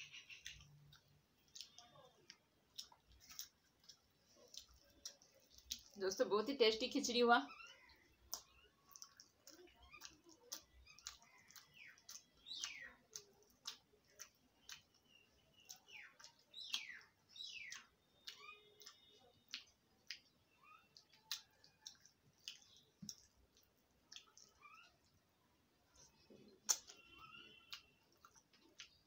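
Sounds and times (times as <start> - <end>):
bird chirping: 0.0 - 3.5, 7.2 - 23.3, 25.9 - 29.0
person chewing food: 0.1 - 6.0, 7.5 - 29.0.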